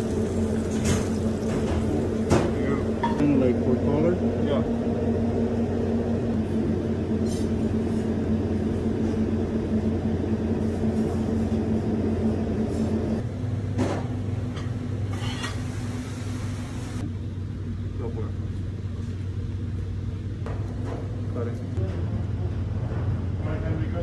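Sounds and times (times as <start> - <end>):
kitchen equipment humming: 0.0 - 17.4.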